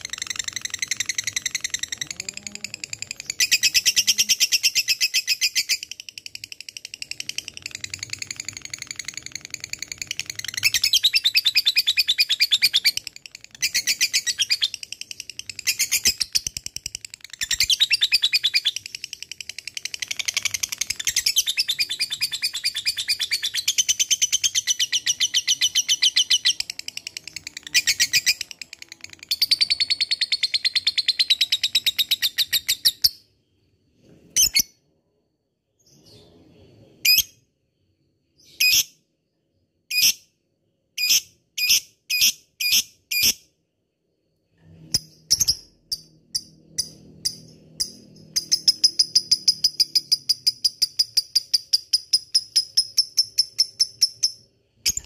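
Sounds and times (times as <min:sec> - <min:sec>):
lovebird chattering song: 0:00.0 - 0:33.2, 0:44.9 - 0:55.0.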